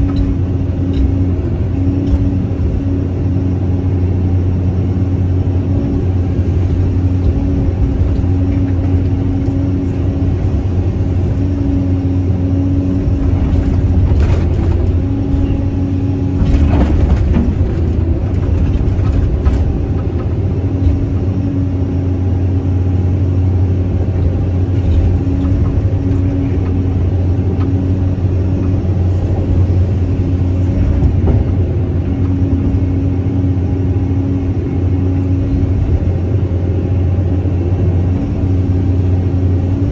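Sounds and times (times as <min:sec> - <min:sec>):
excavator diesel engine humming: 0:00.0 - 0:39.9.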